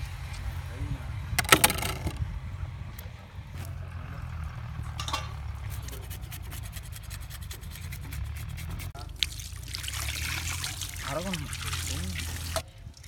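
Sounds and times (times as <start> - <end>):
steady low rumble: 0.0 - 10.0
hand rubbing fish: 5.4 - 9.0
rapid scratchy ticks: 5.6 - 9.0
water pouring and splashing: 7.6 - 13.0.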